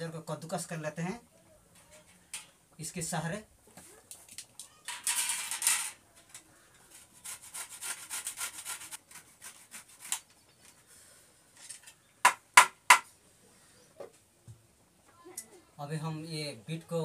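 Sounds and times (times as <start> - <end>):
carrot grating strokes: 6.8 - 10.2
sharp knocks: 12.2 - 13.1.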